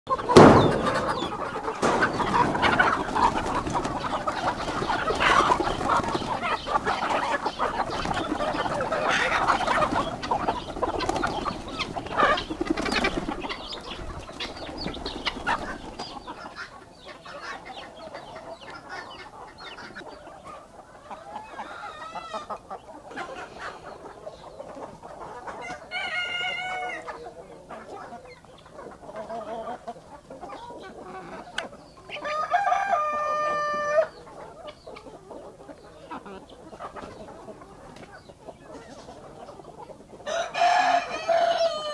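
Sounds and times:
chickens clucking and squawking: 0.1s - 41.9s
wing flapping and scuffling: 0.2s - 16.3s
rooster crowing: 32.2s - 34.1s, 40.3s - 41.9s.

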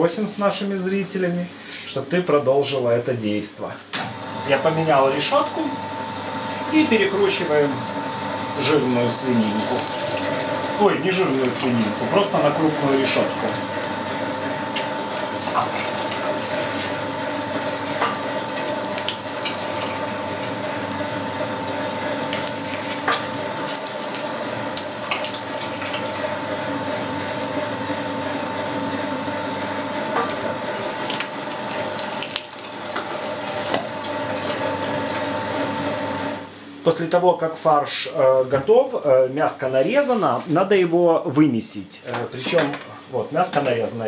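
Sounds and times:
electric meat grinder running: 4.0s - 36.6s.

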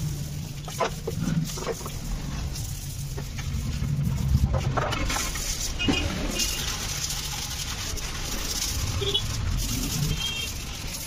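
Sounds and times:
steady low rumble: 0.0s - 10.9s.

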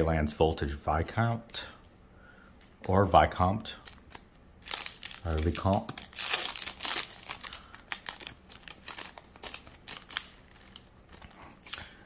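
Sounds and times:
foil wrapper tearing and crinkling: 3.9s - 12.0s.

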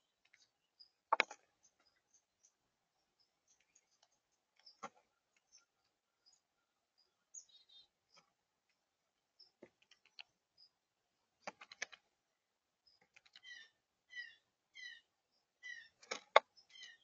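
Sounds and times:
faint high bird chirps: 0.0s - 12.0s, 12.8s - 17.0s.

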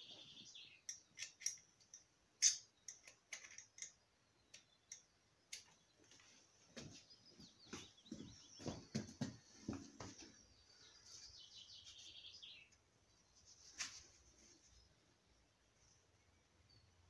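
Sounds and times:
birds chirping: 0.0s - 13.7s.

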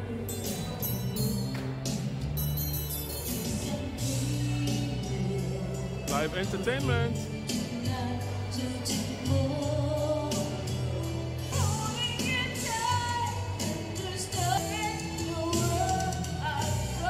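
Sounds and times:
backing track with steady beat: 0.0s - 17.0s
woman singing into microphone: 3.6s - 6.1s, 7.5s - 17.0s.

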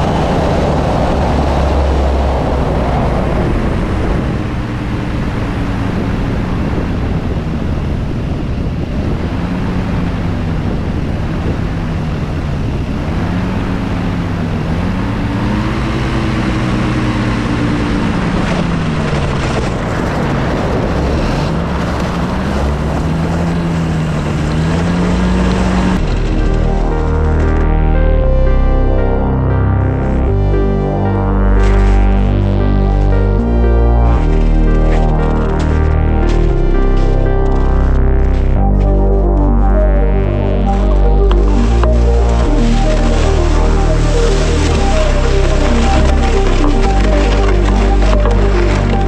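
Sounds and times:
wind rushing: 0.0s - 12.8s
light aircraft engine and propeller: 0.0s - 27.8s.

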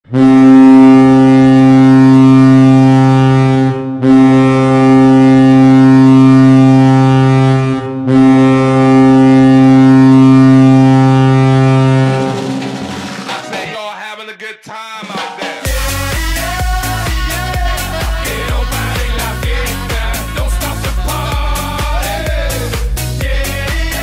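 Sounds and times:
goal horn blasts: 0.1s - 12.6s.

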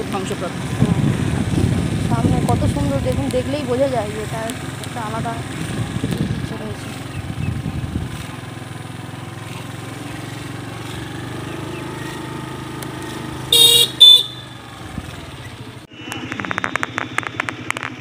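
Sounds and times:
vehicle engine running: 0.0s - 18.0s
vehicle horn honking: 13.5s - 14.7s.

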